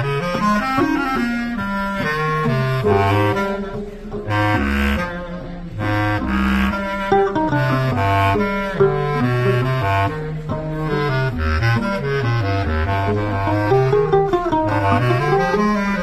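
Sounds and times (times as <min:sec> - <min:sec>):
bass clarinet playing jazz: 0:00.0 - 0:16.0
mandolin: 0:00.0 - 0:16.0.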